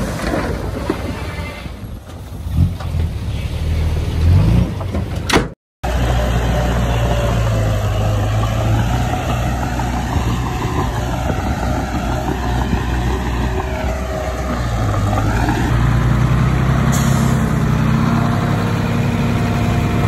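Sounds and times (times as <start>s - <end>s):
heavy machinery diesel engine: 0.0s - 20.0s.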